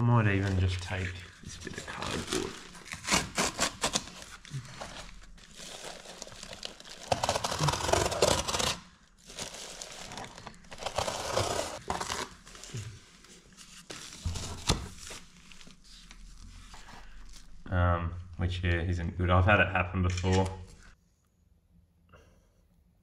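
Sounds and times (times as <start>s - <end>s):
cardboard and tape crinkling: 0.4s - 17.6s
plastic sheeting rustling: 1.6s - 17.6s.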